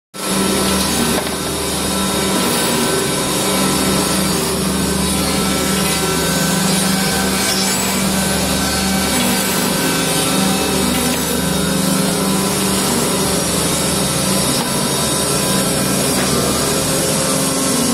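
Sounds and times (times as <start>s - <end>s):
motor hum: 0.2s - 17.9s
wood cutting: 0.2s - 17.9s.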